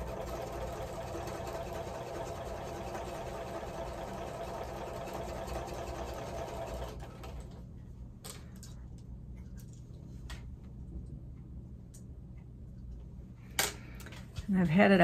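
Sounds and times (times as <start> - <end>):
sewing machine running: 0.0 - 7.6.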